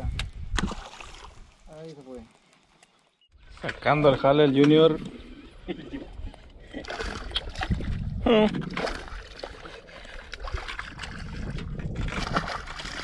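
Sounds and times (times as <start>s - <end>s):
fish splashing at water surface: 0.6s - 1.5s.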